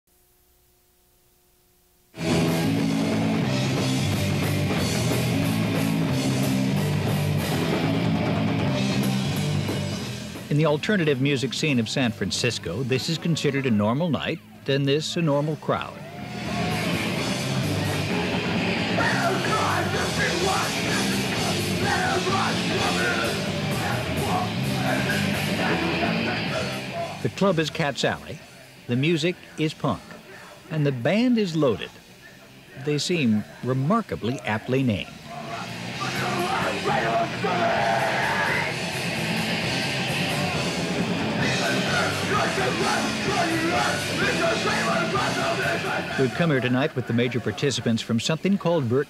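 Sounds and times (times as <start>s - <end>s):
punk rock band playing: 2.2s - 11.2s, 16.0s - 27.9s, 35.1s - 47.2s
singer shouting into microphone: 19.0s - 28.1s, 32.8s - 38.8s, 41.4s - 48.2s.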